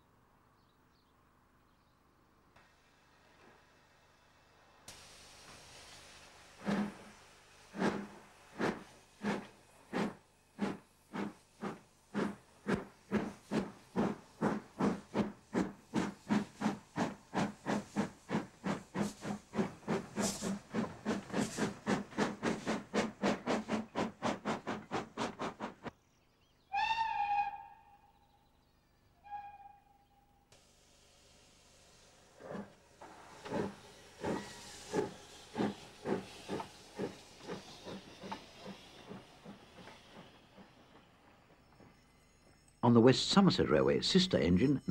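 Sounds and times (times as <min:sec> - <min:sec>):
steam locomotive exhaust beats: 0:03.1 - 0:25.9, 0:30.6 - 0:42.4
steam hissing: 0:04.1 - 0:25.9, 0:30.6 - 0:41.8
steam locomotive whistle: 0:26.7 - 0:28.1, 0:29.2 - 0:30.1.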